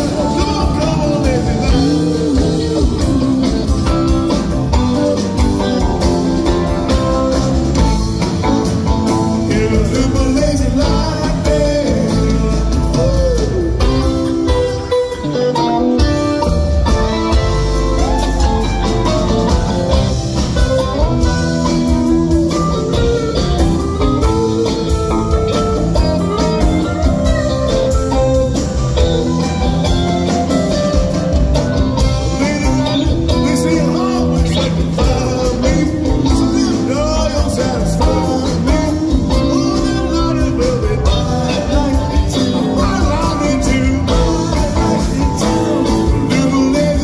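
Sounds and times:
person singing: 0:00.0 - 0:20.0, 0:32.0 - 0:47.0
drum kit: 0:00.0 - 0:47.0
electric guitars: 0:00.0 - 0:47.0
keyboards: 0:00.0 - 0:47.0.

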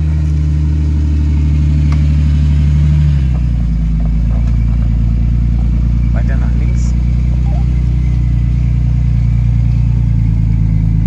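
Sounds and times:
engine running at low revs: 0:00.0 - 0:11.0.

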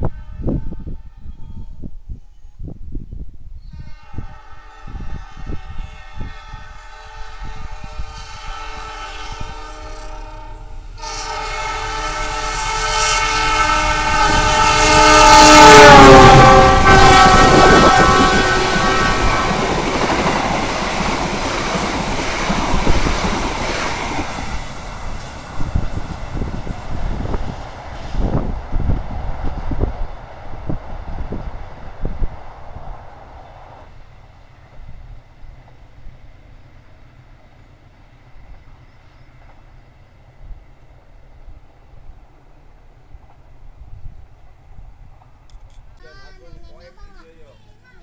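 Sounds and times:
train horn: 0:00.0 - 0:01.9, 0:03.6 - 0:24.6
train carriages rushing past: 0:03.8 - 0:46.0.

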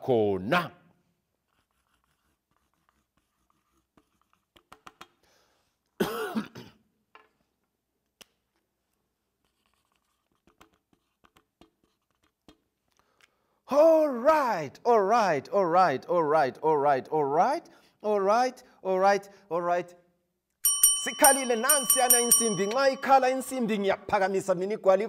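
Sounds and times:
man coughing: 0:06.0 - 0:06.9.

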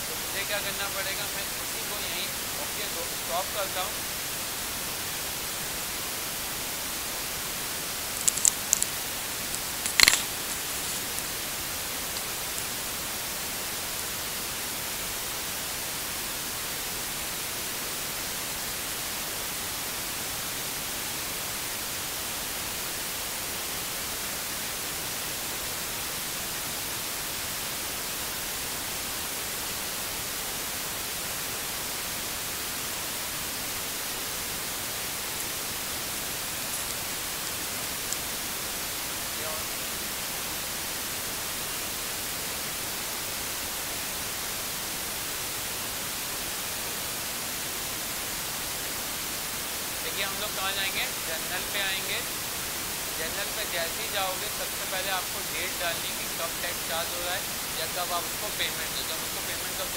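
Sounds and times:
microphone hiss: 0:00.0 - 0:59.9
faint ticks: 0:08.2 - 0:11.3.

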